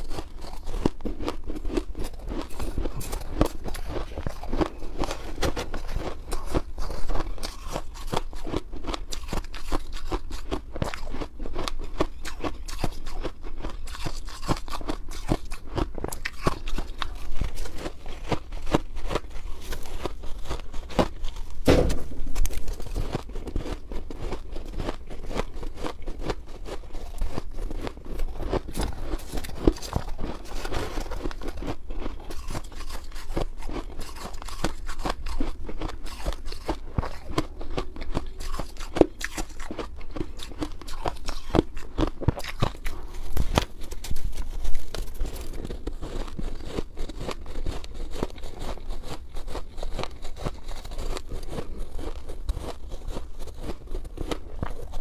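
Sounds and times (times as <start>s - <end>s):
loud thump: 21.6s - 22.5s.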